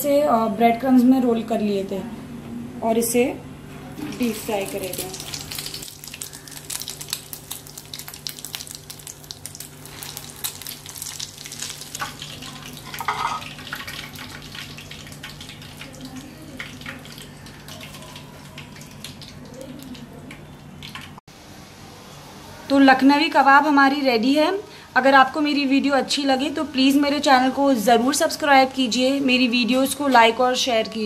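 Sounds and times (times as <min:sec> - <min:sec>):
kebabs sizzling in hot oil: 0:03.9 - 0:21.2.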